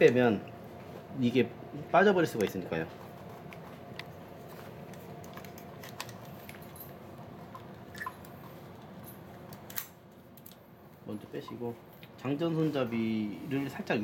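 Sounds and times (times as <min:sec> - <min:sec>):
steady low hum: 0:00.0 - 0:14.0
small clicks and rustles: 0:03.1 - 0:10.6.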